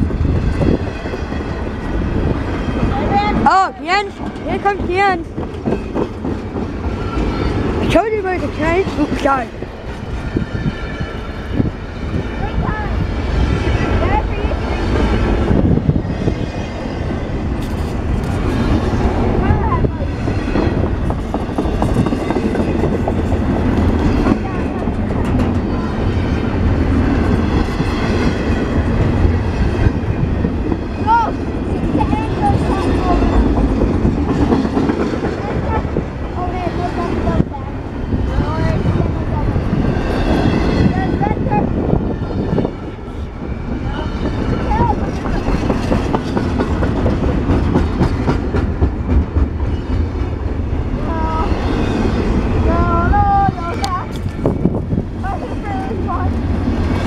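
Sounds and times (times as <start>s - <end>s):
steel train wheels on rails: 0.0s - 57.0s
wheels clicking over rail joints: 20.5s - 28.1s.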